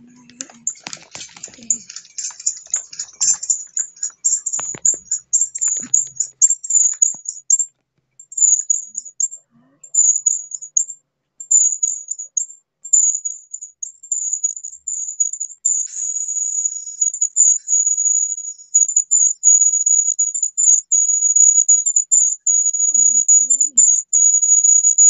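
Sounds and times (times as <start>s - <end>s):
clicks and knocks: 0.1s - 7.9s
insect chirping: 0.4s - 25.0s.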